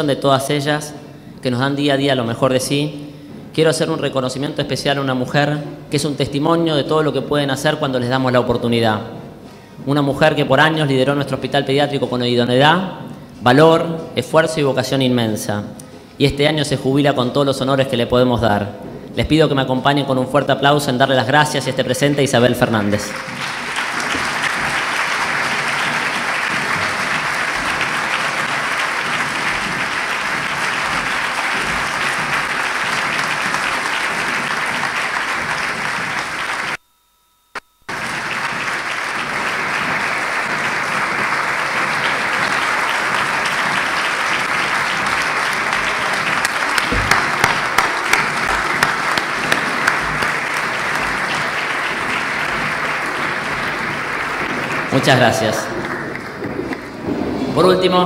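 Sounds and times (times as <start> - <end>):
audience applauding: 21.5 - 36.8, 37.9 - 58.0.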